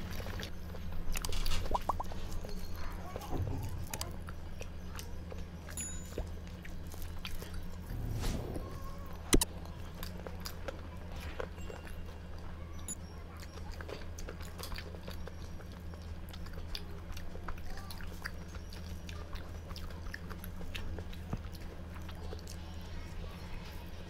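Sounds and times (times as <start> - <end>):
steady low hum: 0.0 - 24.0
person chewing food: 3.9 - 8.0, 9.3 - 22.8.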